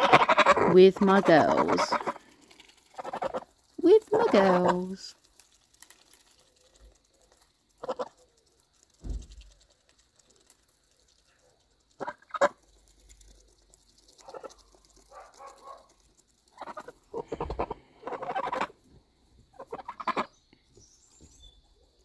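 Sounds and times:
geese honking: 0.0 - 2.3, 2.9 - 5.0, 7.8 - 8.1, 16.6 - 18.8, 19.5 - 20.3.

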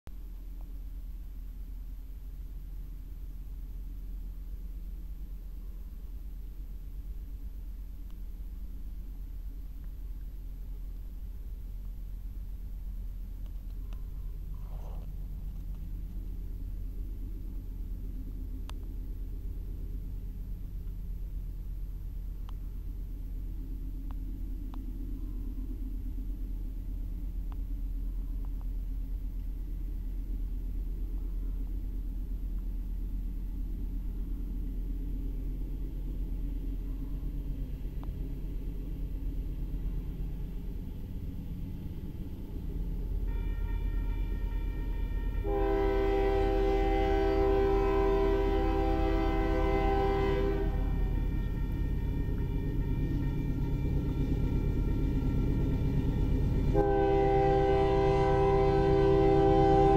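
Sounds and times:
low steady rumble: 0.1 - 59.9
crossing warning bell: 43.2 - 45.5
locomotive air horn: 43.2 - 54.8, 56.6 - 59.9.

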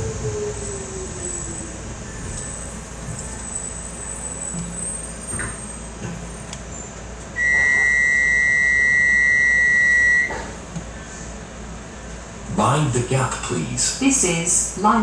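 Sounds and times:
train door warning beep: 7.4 - 10.6.

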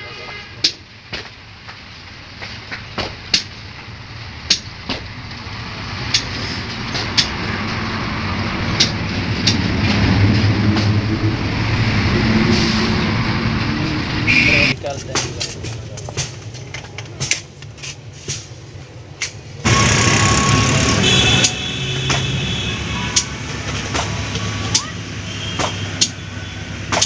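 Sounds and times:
sharp clicks and knocks: 6.1 - 7.8, 8.8 - 11.0
vehicle engine running: 19.6 - 25.5.

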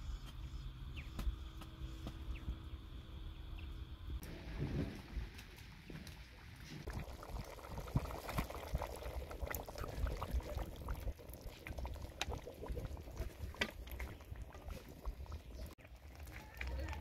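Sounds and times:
stew boiling and bubbling: 0.4 - 17.0.

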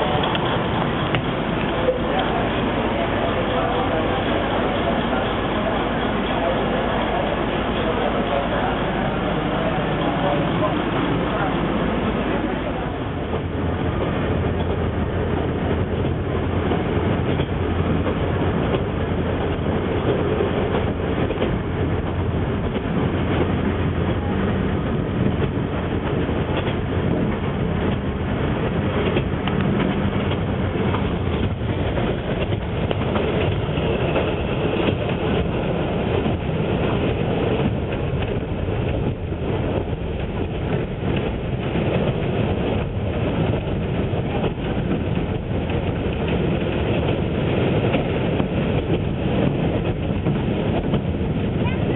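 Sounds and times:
train engine hum: 0.0 - 51.9
wheels on rails: 12.2 - 51.9.

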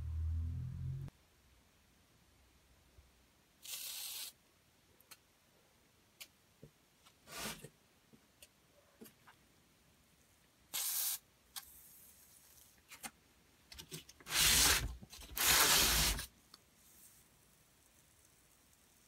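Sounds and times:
aerosol can spraying: 10.7 - 11.2.

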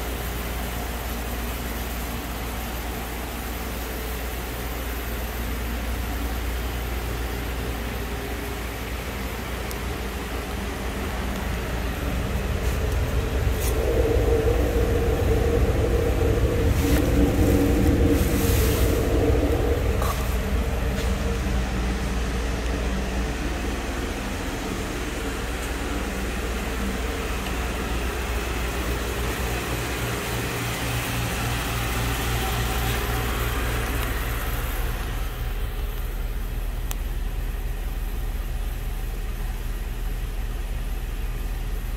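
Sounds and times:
truck engine idling: 0.0 - 41.9.

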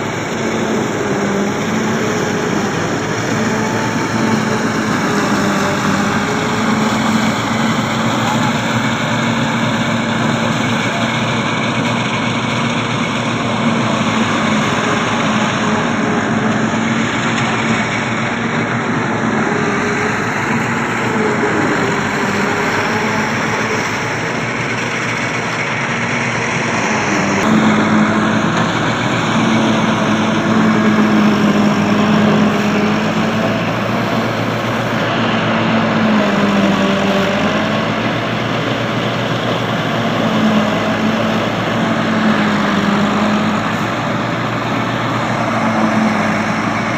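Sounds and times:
tractor engine under load: 0.0 - 46.9.

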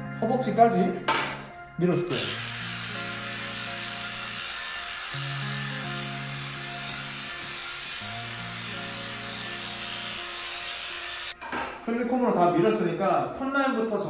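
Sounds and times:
background music: 0.0 - 14.0
electric pet clipper buzzing: 2.1 - 11.4.

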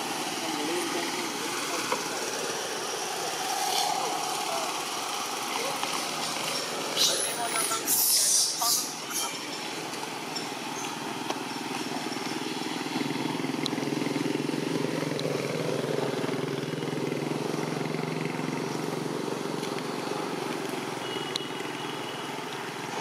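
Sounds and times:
vehicle engine passing by: 0.0 - 8.4.

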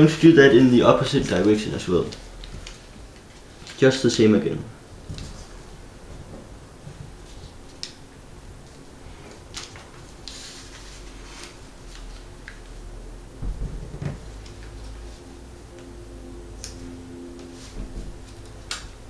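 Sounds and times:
paper being folded: 0.2 - 4.2, 6.4 - 8.0, 8.6 - 12.9
low knocks: 13.4 - 14.3.

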